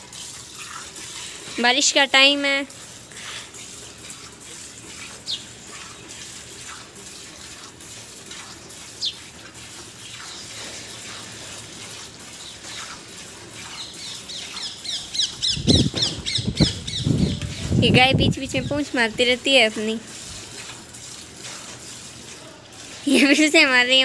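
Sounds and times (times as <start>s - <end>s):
milk squirting into steel bucket: 0.0s - 1.7s, 2.7s - 14.8s, 20.0s - 23.1s
bird chirping: 13.8s - 17.7s.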